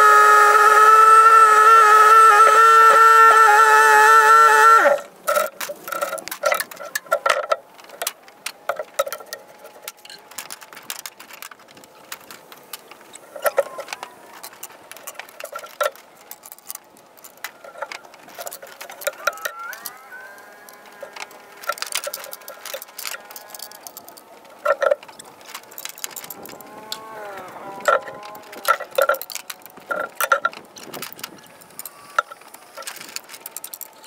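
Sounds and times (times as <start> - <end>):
wooden boards clattering: 4.9 - 20.0.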